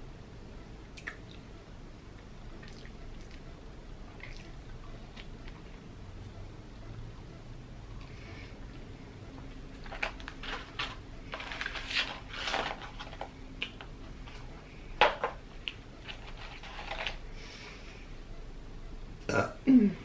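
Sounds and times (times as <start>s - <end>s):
paper packaging rustling: 9.8s - 13.4s, 16.0s - 17.2s.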